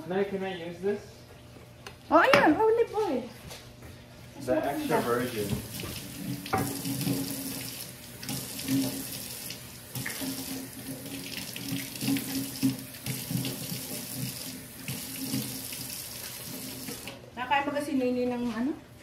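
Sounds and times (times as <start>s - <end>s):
tap water splashing into sink: 4.9s - 17.2s.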